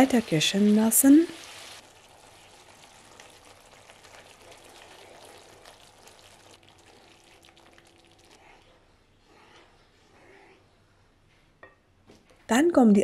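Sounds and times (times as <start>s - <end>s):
sauce sizzling and bubbling: 0.0s - 8.8s.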